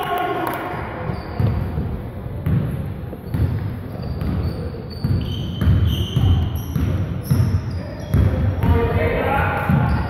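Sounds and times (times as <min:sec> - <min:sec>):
basketball bouncing on gym floor: 0:01.0 - 0:10.0
short high squeaks: 0:03.9 - 0:06.8.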